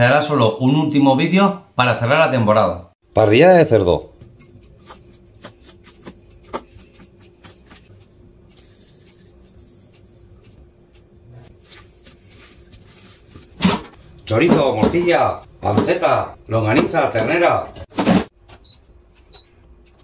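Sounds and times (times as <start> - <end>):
utensils clicking and tapping: 4.1 - 11.4.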